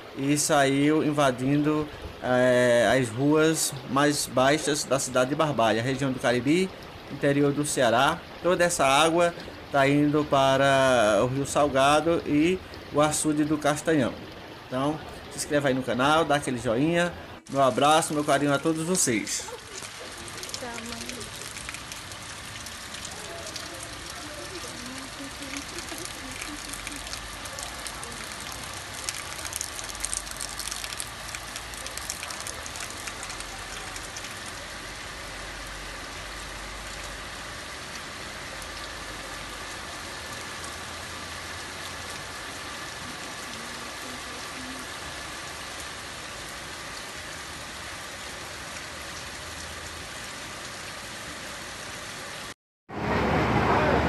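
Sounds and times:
floodwater rushing: 0.0 - 54.0
crackles: 19.5 - 34.8.

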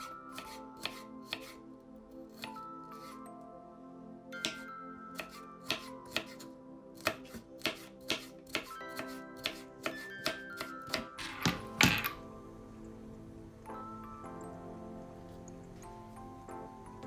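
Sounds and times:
knife chopping on wooden board: 0.3 - 1.6, 4.4 - 4.6, 5.2 - 6.4, 7.0 - 12.0.

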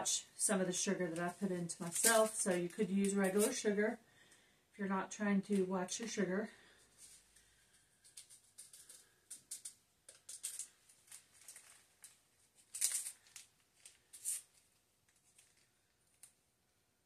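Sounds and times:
paper packets tearing and crinkling: 1.1 - 3.6, 8.1 - 16.3.

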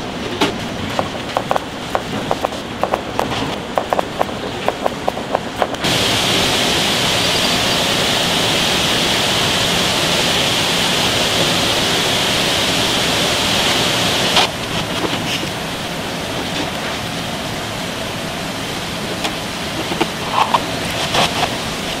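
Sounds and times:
pot boiling: 0.0 - 17.1
knife chopping on plastic board: 0.9 - 5.8.

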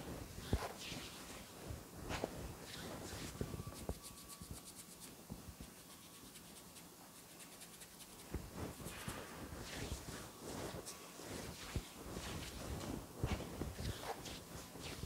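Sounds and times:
hands rubbing skin and hair: 0.0 - 15.0
fine quick crackles: 7.6 - 15.0.

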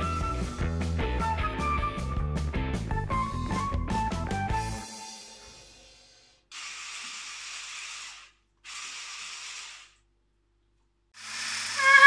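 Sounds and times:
hand blender running: 6.5 - 10.0, 11.2 - 12.0.

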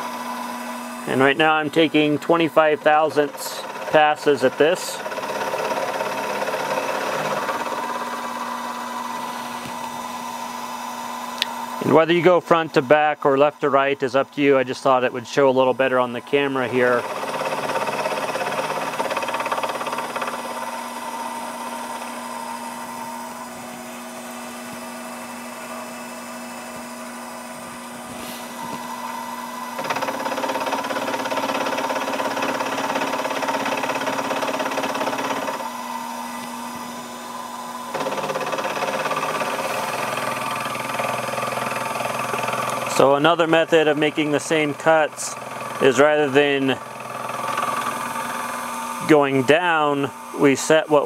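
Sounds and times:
milling machine cutting metal: 0.0 - 12.6, 15.7 - 51.0.

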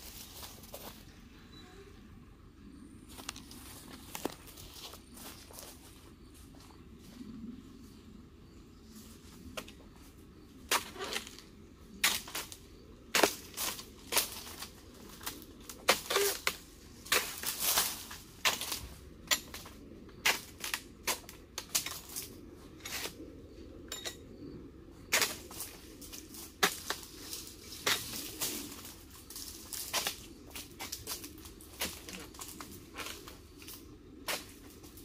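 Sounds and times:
chisel chopping palm stalks: 10.7 - 11.4, 13.1 - 22.2, 26.6 - 27.1, 30.8 - 33.1.

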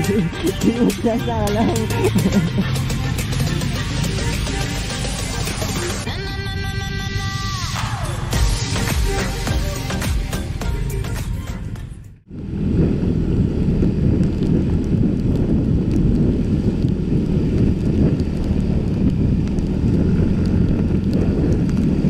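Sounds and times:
music: 0.0 - 12.2
wind buffeting microphone: 12.3 - 22.0.

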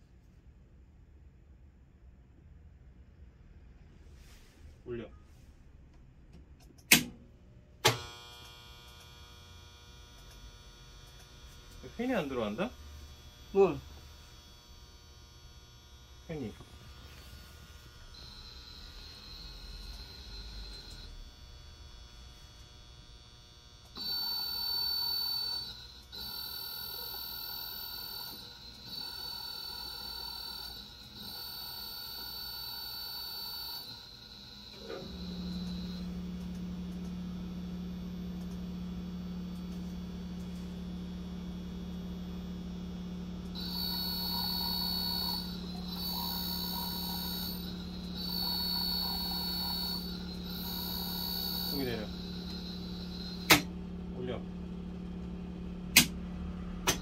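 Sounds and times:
faint mains hum: 0.0 - 57.0
servo motor electrical whine: 7.8 - 57.0.

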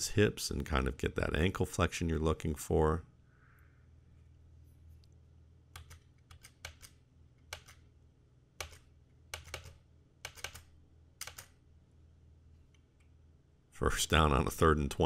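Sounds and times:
low steady hum: 0.0 - 15.0
computer keyboard clicks: 5.8 - 7.8, 8.6 - 11.6.

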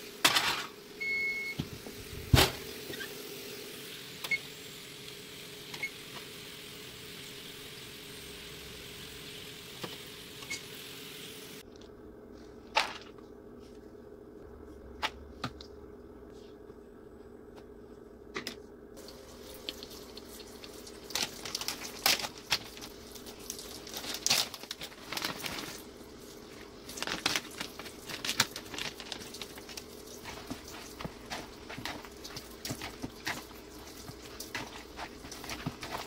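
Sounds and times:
low steady hum: 11.2 - 36.0
plastic bag crinkling: 19.0 - 36.0
spatula stirring in bowl: 29.4 - 36.0.

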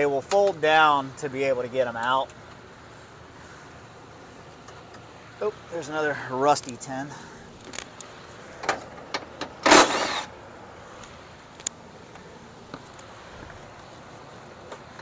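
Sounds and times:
small power tool motor whirring: 9.7 - 10.3.

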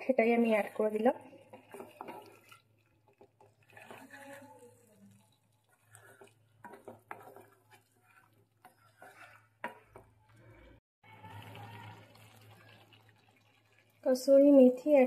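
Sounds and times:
spoon scraping a pan: 0.0 - 10.8.

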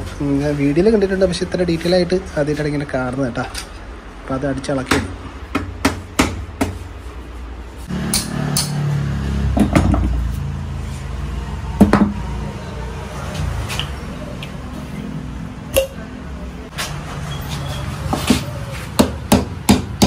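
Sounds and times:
hammer tapping metal: 8.0 - 8.8.

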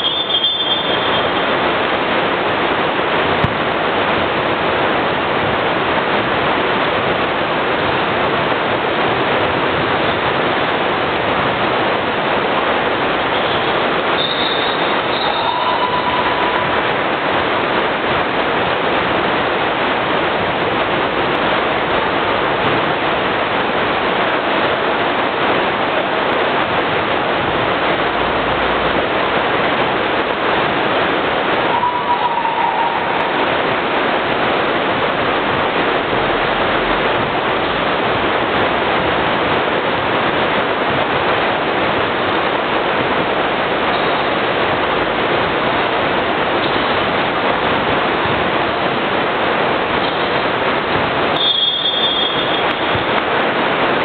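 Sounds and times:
loud steady hiss: 0.0 - 54.0
short high tone bending down: 13.3 - 17.0, 31.7 - 33.9.

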